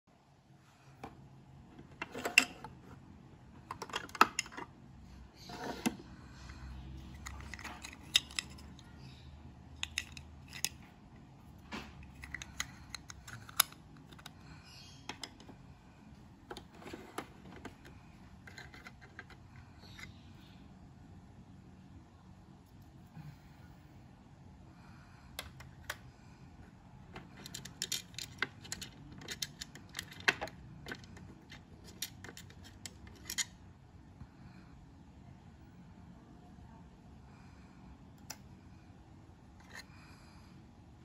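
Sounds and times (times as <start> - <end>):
plastic drawers sliding: 5.5 - 6.1, 16.5 - 17.9
toy pieces clicking and clattering: 7.1 - 8.9, 9.8 - 10.8, 12.0 - 14.4, 27.2 - 33.6.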